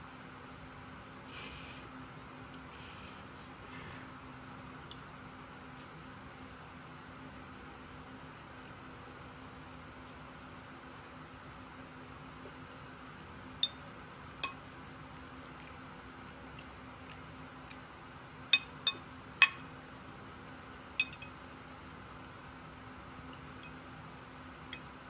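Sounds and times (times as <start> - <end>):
faint steady hum: 0.0 - 25.0
fork clinking on a plate: 14.4 - 14.7, 18.6 - 19.7, 21.0 - 21.3.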